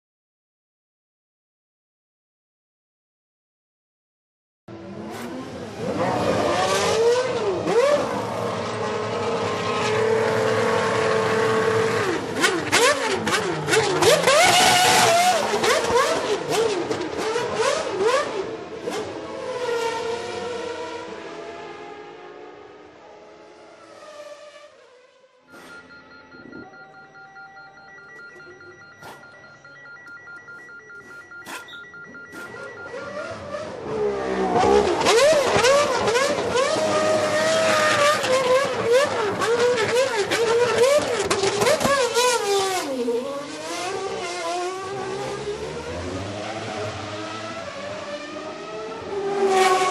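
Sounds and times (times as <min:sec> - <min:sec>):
racing car engine high-revving: 0:04.7 - 0:24.7, 0:32.3 - 0:49.9
faint electronic beeps: 0:25.5 - 0:34.0.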